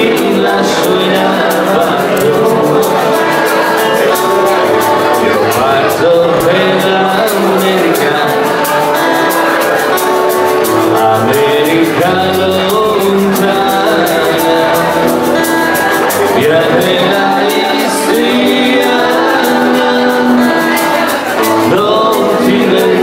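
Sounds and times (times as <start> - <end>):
acoustic guitar strumming: 0.0 - 23.0
men singing: 0.0 - 23.0.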